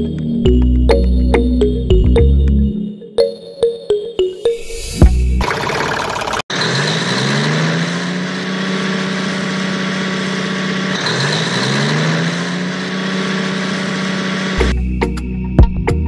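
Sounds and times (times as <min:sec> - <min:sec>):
truck engine revving: 0:05.3 - 0:14.8.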